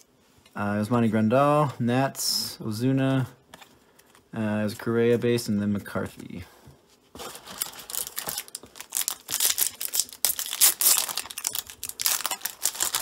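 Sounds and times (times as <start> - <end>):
crinkly wrapper tearing: 7.2 - 13.0.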